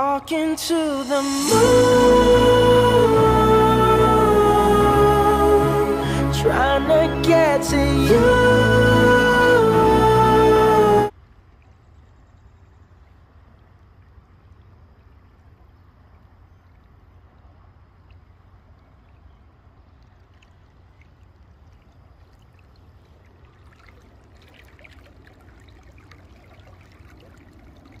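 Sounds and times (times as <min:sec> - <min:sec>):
river water flowing and lapping: 0:11.1 - 0:28.0
water splashing and trickling: 0:12.9 - 0:28.0.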